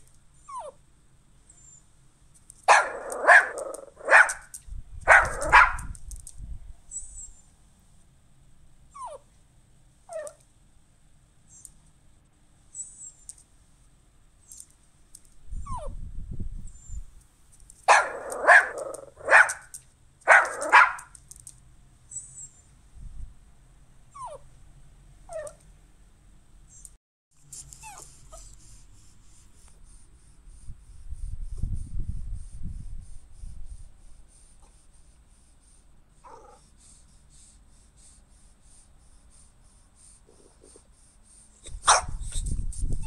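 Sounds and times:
dog barking loudly: 2.7 - 4.5, 5.1 - 6.0, 17.9 - 19.7, 20.3 - 21.2, 41.8 - 42.2
dog whimpering: 9.0 - 9.2, 25.3 - 25.6, 27.8 - 28.5, 36.2 - 36.6.

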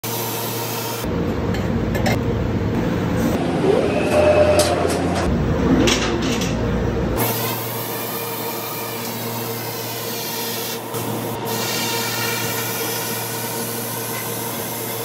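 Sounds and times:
welding hum and hiss: 0.0 - 1.3, 7.2 - 15.0
mechanical rumble: 1.0 - 7.2.

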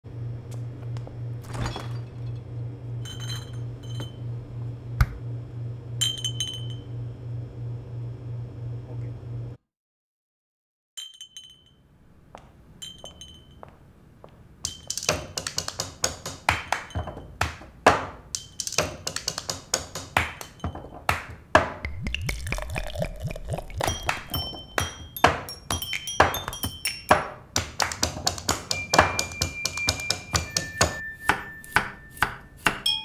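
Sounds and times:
glass clinks: 3.0 - 4.2, 6.0 - 6.9, 11.0 - 11.9, 12.8 - 13.7, 16.8 - 17.3, 20.3 - 21.0, 23.9 - 27.4, 28.7 - 33.0
glass pings: 3.0 - 4.2, 6.0 - 6.9, 11.0 - 11.9, 12.8 - 13.7, 14.7 - 15.0, 16.8 - 17.4, 20.4 - 20.9, 23.7 - 27.4, 28.7 - 33.0
rhythmic thunks and taps: 14.6 - 31.0.

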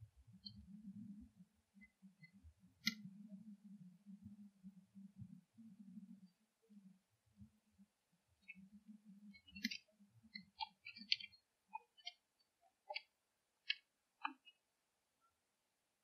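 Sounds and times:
sharp irregular clicks: 9.4 - 14.6.

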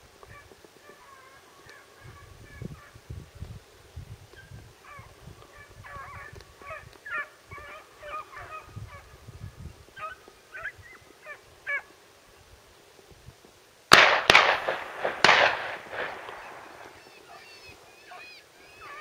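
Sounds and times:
hunting dog baying and yelping: 4.4 - 9.2, 9.9 - 11.9, 16.4 - 19.0.

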